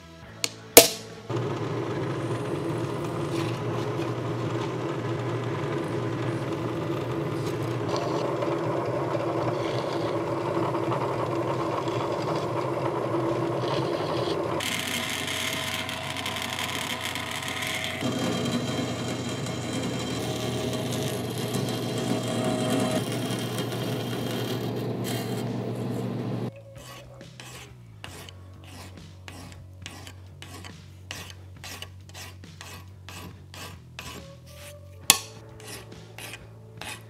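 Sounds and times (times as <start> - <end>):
band saw cutting sheet metal: 0.8 - 37.0
drill press running: 1.3 - 26.5.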